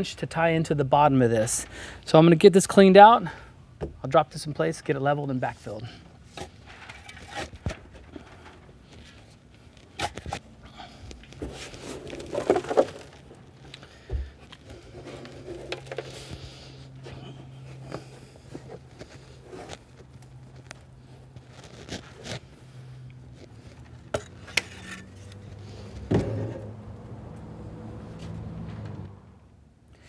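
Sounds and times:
plastic tank scraping and knocking: 0:15.0 - 0:16.2
dull thump: 0:26.1 - 0:26.6.

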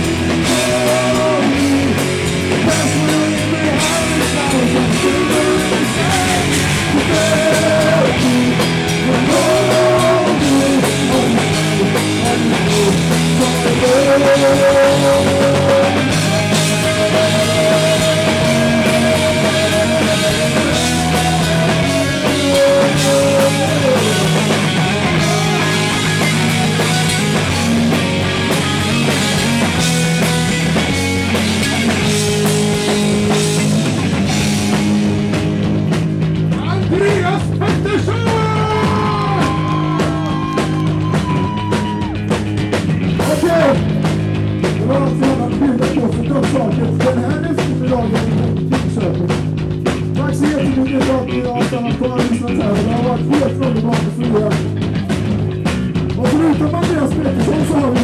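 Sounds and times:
drum kit: 0:00.0 - 0:58.0
electric bass: 0:00.0 - 0:58.0
electric guitar: 0:00.0 - 0:58.0
person singing: 0:00.4 - 0:26.5.

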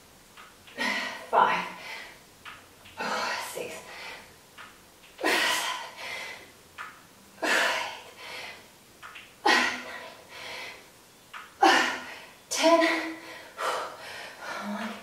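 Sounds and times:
woman breathing hard: 0:03.0 - 0:04.4, 0:05.2 - 0:06.5, 0:07.4 - 0:08.7, 0:09.4 - 0:10.9, 0:11.6 - 0:15.0.

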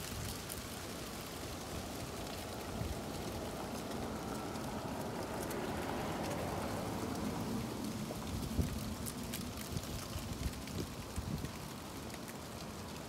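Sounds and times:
gusty wind buffeting microphone: 0:01.8 - 0:11.9.

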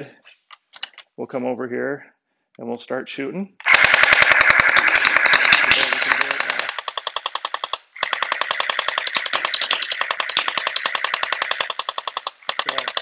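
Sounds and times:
gel ball blaster firing full-auto: 0:03.6 - 0:13.0.

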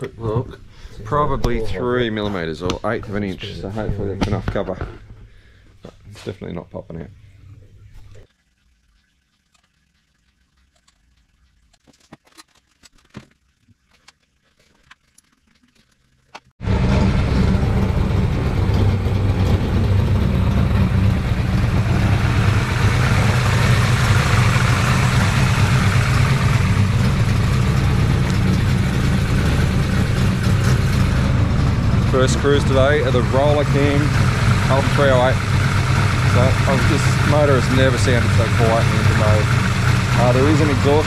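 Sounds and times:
engine idling: 0:16.1 - 0:41.0.

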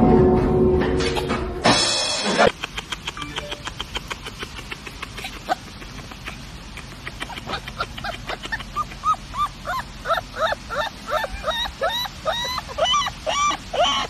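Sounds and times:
puppy yipping: 0:07.1 - 0:14.0.

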